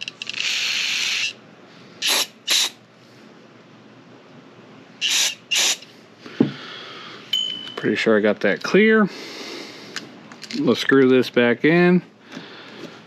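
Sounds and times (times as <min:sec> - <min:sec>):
aerosol spray hissing: 0:02.0 - 0:02.8, 0:05.0 - 0:05.8.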